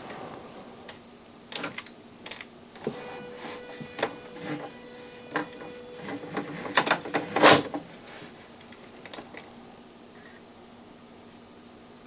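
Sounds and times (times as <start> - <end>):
mechanical clicks and clunk: 5.3 - 7.8.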